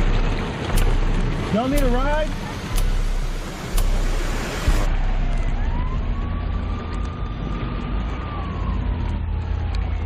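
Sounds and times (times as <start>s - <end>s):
road noise inside car: 0.0s - 10.0s
siren wailing: 4.8s - 10.0s.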